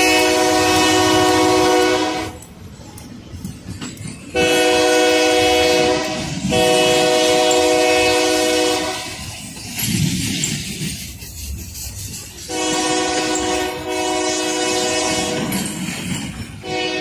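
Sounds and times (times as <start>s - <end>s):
locomotive air horn blasts: 0.0s - 2.4s, 4.4s - 9.3s, 12.5s - 15.6s, 16.6s - 17.0s
freight cars rumbling and clattering: 0.0s - 17.0s.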